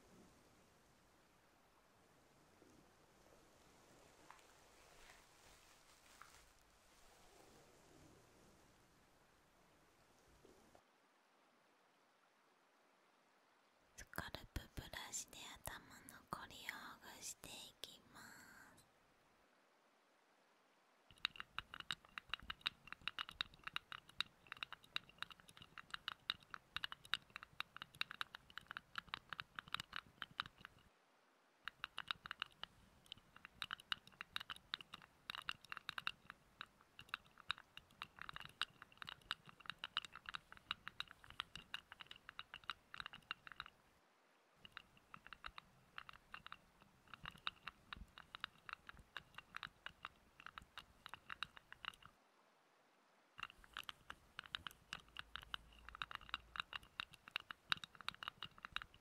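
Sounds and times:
fingertip scratching and rubbing: 21.1s - 30.8s, 31.7s - 43.8s, 44.6s - 52.1s, 53.4s - 59.0s.

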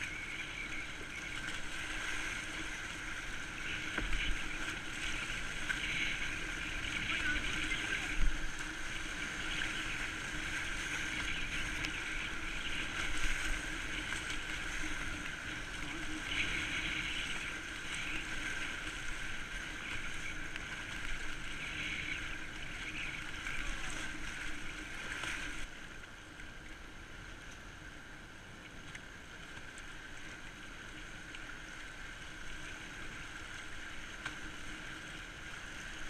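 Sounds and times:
river water rushing: 0.0s - 26.2s
paddle strokes: 0.0s - 26.8s
waves splashing: 0.0s - 36.0s.

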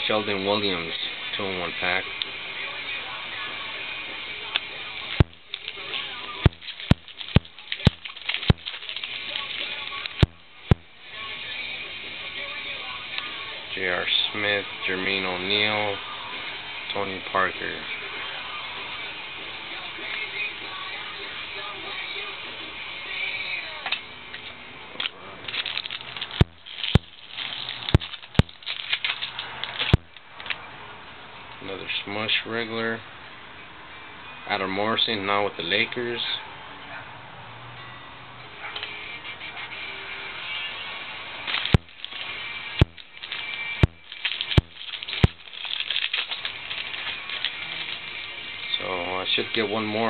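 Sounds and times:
cards rustling and crinkling: 5.2s - 10.8s, 25.0s - 30.6s, 41.4s - 49.7s
sharp clicks: 25.6s - 30.6s, 41.5s - 46.4s.

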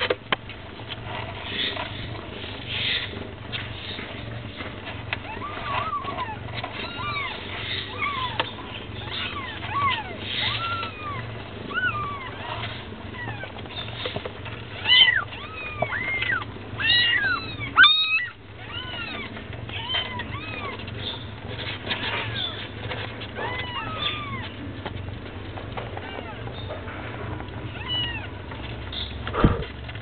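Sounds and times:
steady low hum: 0.0s - 30.0s
kittens mewing: 4.9s - 24.7s, 25.8s - 28.6s.

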